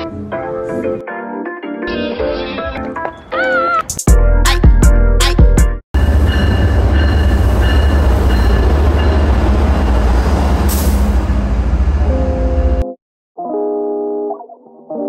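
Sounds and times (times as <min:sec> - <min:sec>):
locomotive rumble: 0:06.0 - 0:12.8.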